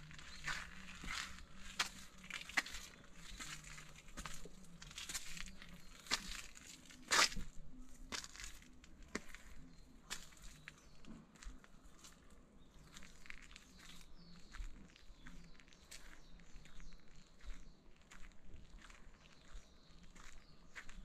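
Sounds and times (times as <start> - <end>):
footsteps crunching on dry leaves: 0.0 - 10.8.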